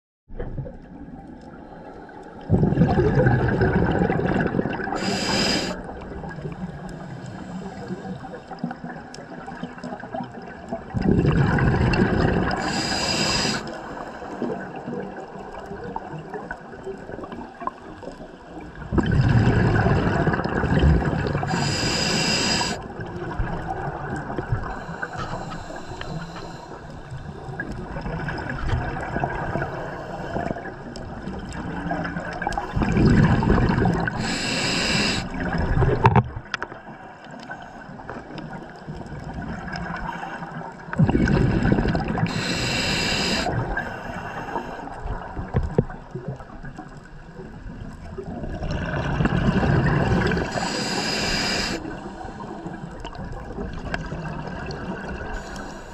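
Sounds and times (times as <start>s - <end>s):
bubbling regulator exhalations: 2.4s - 6.7s, 10.9s - 13.7s, 18.8s - 30.8s, 31.4s - 36.3s, 40.8s - 45.9s, 48.2s - 55.9s
underwater hiss: 4.8s - 8.7s, 12.2s - 15.0s, 21.2s - 23.1s, 24.6s - 27.6s, 32.5s - 35.8s, 41.2s - 45.0s, 49.4s - 53.8s, 54.5s - 55.9s.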